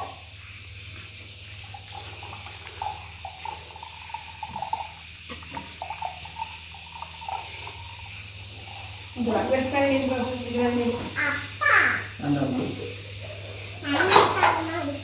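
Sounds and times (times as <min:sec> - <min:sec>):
coconut water dripping into brass plate: 0:00.5 - 0:10.6.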